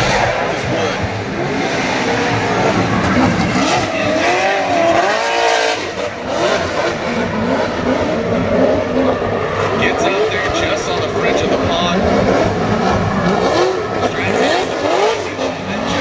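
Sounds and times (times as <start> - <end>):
car engines revving: 0.0 - 16.0.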